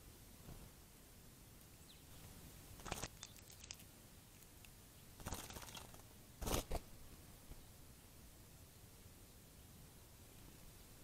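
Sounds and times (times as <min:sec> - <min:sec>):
bird splashing in water: 0:02.8 - 0:03.9, 0:05.2 - 0:06.7.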